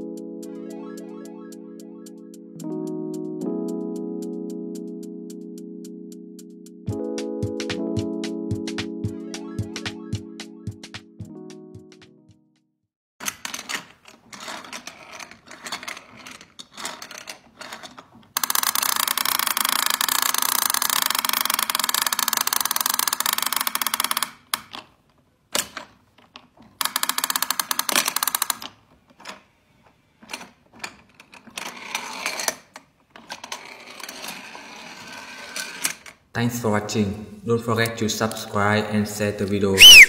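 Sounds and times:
plastic toy clicks and rattles: 0:13.2 - 0:24.9, 0:25.5 - 0:29.4, 0:30.2 - 0:36.2
fast ratcheting clicks: 0:18.4 - 0:24.3, 0:26.8 - 0:28.6.

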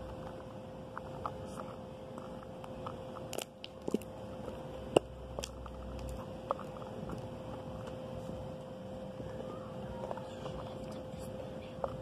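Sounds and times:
faint steady hum: 0:00.0 - 0:12.0.

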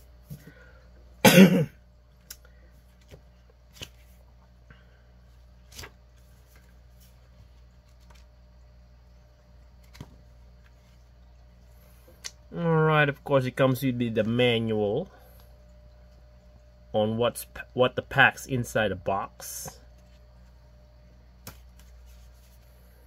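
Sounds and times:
person coughing: 0:01.2 - 0:01.8.

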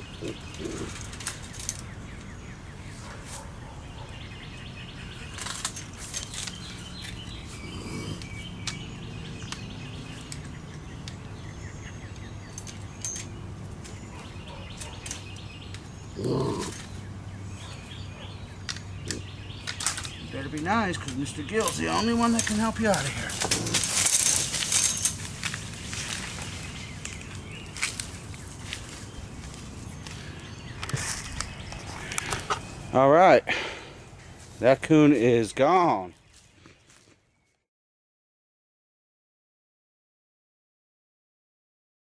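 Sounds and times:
raccoon chirping calls: 0:17.6 - 0:20.4
wire cage clicks and rattles: 0:19.6 - 0:25.7.

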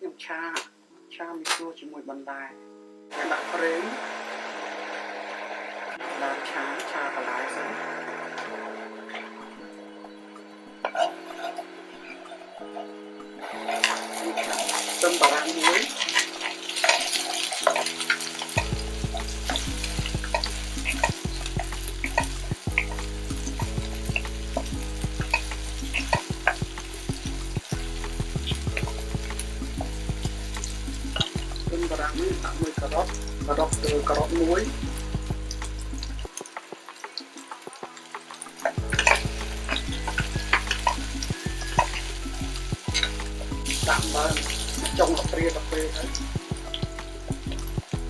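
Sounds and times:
onions sizzling in oil: 0:03.1 - 0:48.0
background music with bass line: 0:17.7 - 0:36.8, 0:37.4 - 0:48.0.

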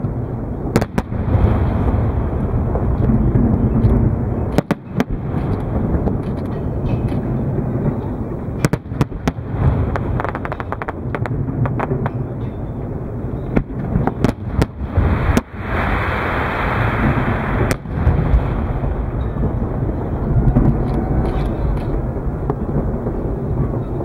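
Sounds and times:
firework crackles: 0:00.0 - 0:12.3, 0:13.6 - 0:24.0
deep rumble of firework bursts: 0:00.0 - 0:24.0
sharp firework bangs: 0:13.6 - 0:19.9
firework hiss: 0:14.8 - 0:19.0.

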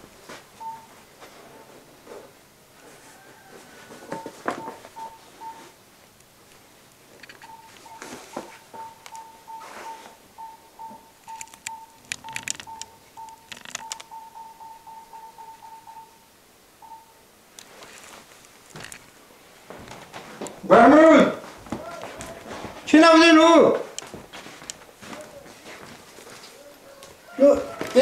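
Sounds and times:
high electronic beeps: 0:07.3 - 0:16.2
sharp clicks and knocks: 0:11.3 - 0:14.2, 0:18.7 - 0:19.1.

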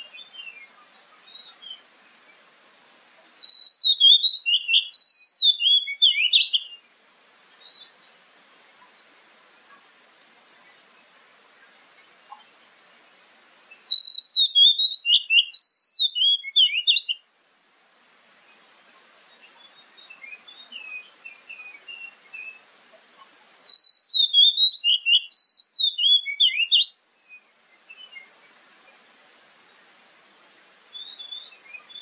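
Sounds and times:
bird singing whistled notes: 0:00.0 - 0:02.4, 0:03.4 - 0:06.9, 0:07.6 - 0:08.0, 0:13.7 - 0:17.2, 0:19.3 - 0:22.7, 0:23.7 - 0:28.6, 0:30.9 - 0:32.0
faint birdsong: 0:00.0 - 0:32.0.

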